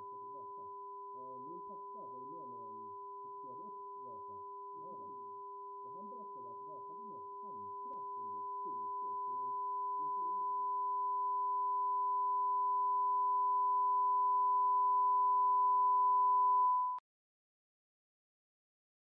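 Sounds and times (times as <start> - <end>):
fainter lower tone: 0.0 - 17.0
high-pitched sine tone: 0.0 - 17.0
faint muffled voices: 1.2 - 8.9.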